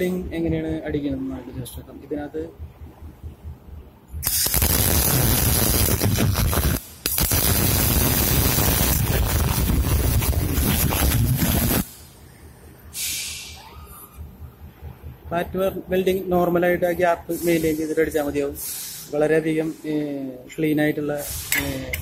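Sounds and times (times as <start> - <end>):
welding arc buzzing: 4.2 - 12.0.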